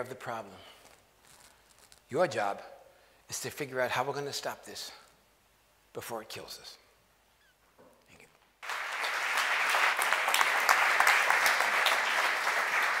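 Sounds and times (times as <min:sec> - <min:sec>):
audience applauding: 0:08.6 - 0:13.0.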